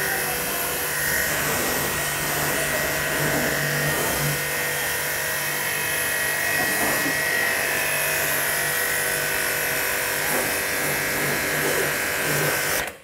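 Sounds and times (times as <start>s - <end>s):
water jet hissing on car: 0.0s - 4.7s, 10.0s - 12.8s
pressure washer motor humming: 0.0s - 13.0s.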